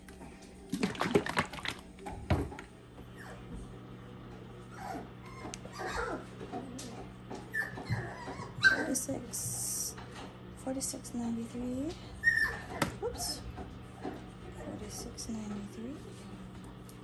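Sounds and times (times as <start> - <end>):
puppy whimpering and yipping: 4.7 - 6.3, 7.5 - 9.0, 12.2 - 12.9.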